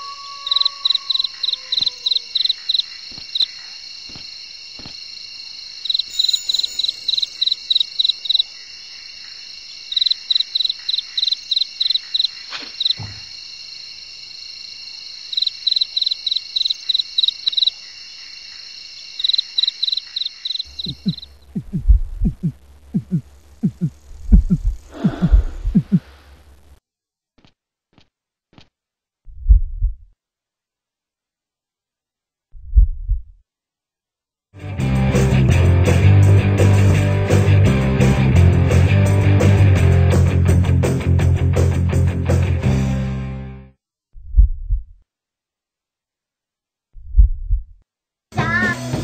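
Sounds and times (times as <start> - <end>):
high-pitched insect drone: 0.0 - 21.4
crickets chirping: 0.0 - 26.6
heartbeat-like low thumps: 20.8 - 26.1, 29.3 - 30.1, 32.6 - 33.4, 44.2 - 45.0, 47.0 - 47.8.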